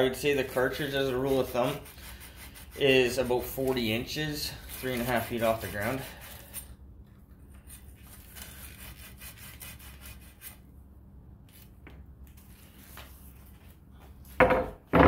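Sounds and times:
steady low hum: 0.0 - 14.9
rubbing on copper pipe: 0.3 - 6.6.

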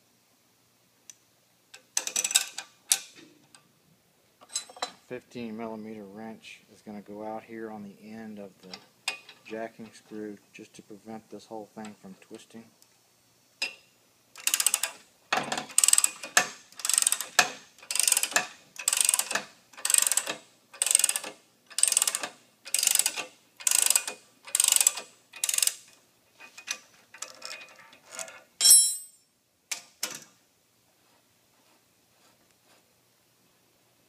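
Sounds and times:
ratchet wrench clicking: 14.4 - 14.9, 15.8 - 25.8.

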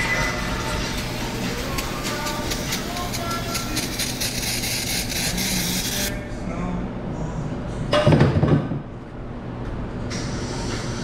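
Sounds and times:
aerosol spray can hissing: 1.0 - 6.1.

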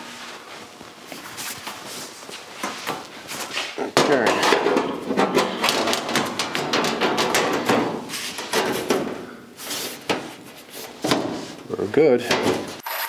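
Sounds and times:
sheet metal knocking and clattering: 4.0 - 9.3, 11.0 - 11.4, 12.2 - 12.8.

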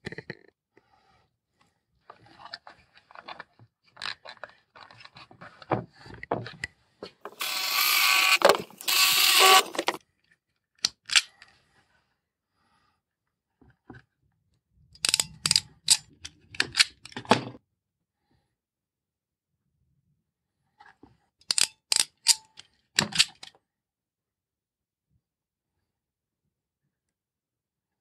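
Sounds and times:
cable scraping rustle: 7.2 - 10.0.

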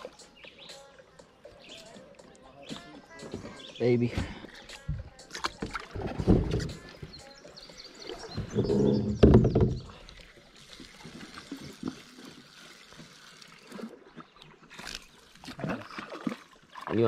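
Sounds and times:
water sloshing against a hull: 0.0 - 17.0.

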